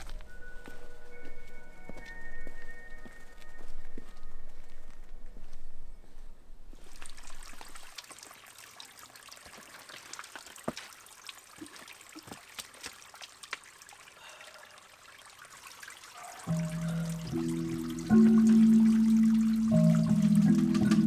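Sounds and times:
sharp water drips: 0:06.8 - 0:21.0
water trickling and splashing on rocks: 0:06.8 - 0:21.0.

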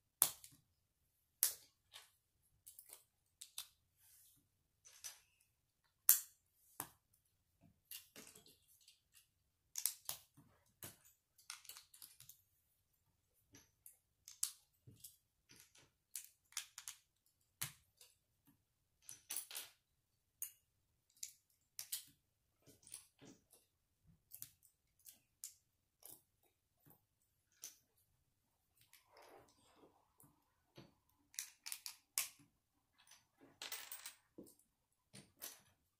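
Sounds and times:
plastic bricks clicking together: 0:31.3 - 0:32.4.

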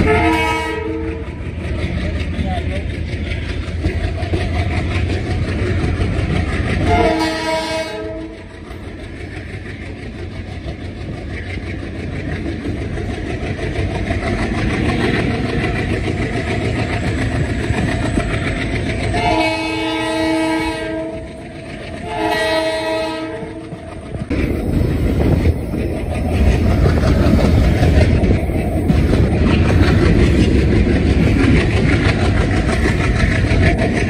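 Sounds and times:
diesel locomotive horn: 0:00.0 - 0:01.6, 0:06.8 - 0:08.5, 0:19.1 - 0:23.8
train rumble and wheel clatter: 0:00.0 - 0:34.0.

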